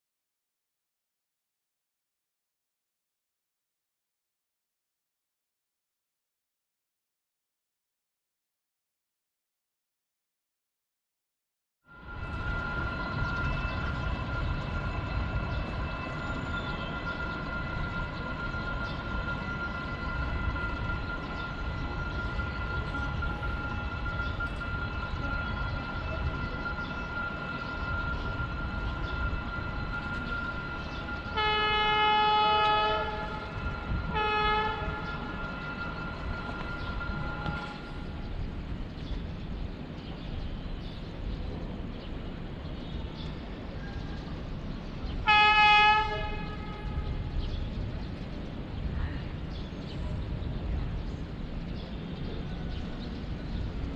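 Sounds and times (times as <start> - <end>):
locomotive horn blasts: 11.9 - 38.2, 45.2 - 47.4
steady high tone: 11.9 - 38.9
train rumbling: 11.9 - 53.9.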